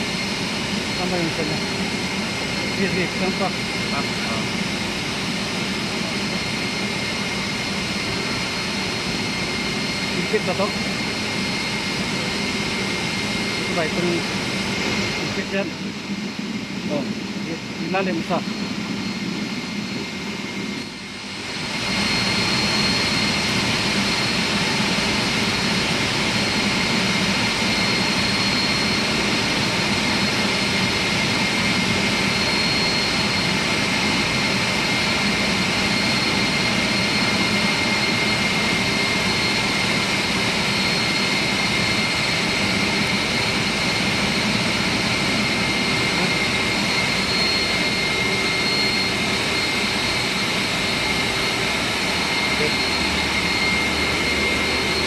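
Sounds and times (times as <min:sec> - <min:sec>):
heavy machinery roaring with whine: 0:00.0 - 0:55.0.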